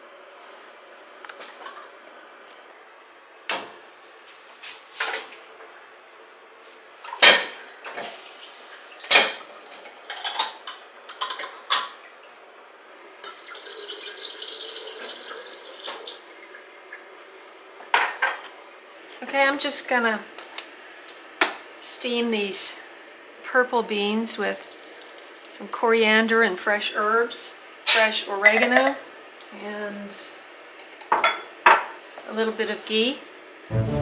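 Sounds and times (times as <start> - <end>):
juice pouring into pitcher: 13.2 - 16.6, 24.6 - 25.5.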